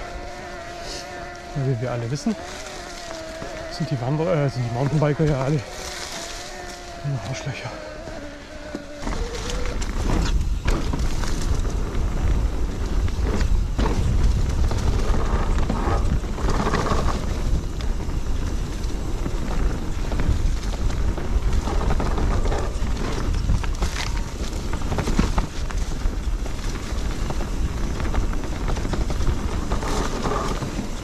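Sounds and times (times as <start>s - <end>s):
bike tyre noise on trail: 0.0s - 31.0s
wind rumbling on microphone: 0.0s - 31.0s
bike knocks and rattles: 8.7s - 31.0s.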